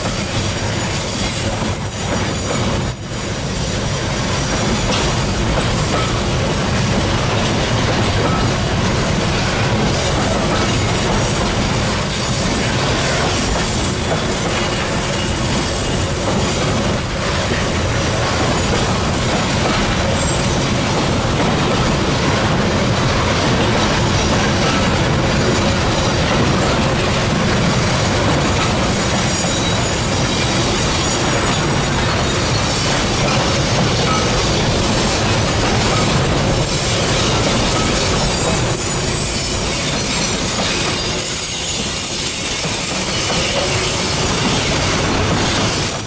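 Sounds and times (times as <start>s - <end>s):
clatter over rail joints: 0.0s - 46.0s
train wheels on rail: 0.0s - 46.0s
high wheel squeal: 10.0s - 16.7s, 28.5s - 46.0s.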